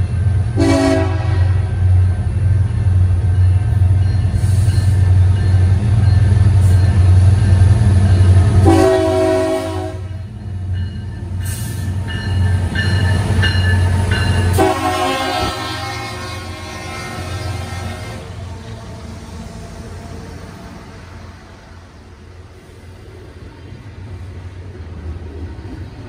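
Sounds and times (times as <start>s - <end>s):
diesel locomotives rumbling: 0.0s - 26.0s
locomotive air horn chord: 0.6s - 1.8s, 8.6s - 10.2s, 14.5s - 18.3s.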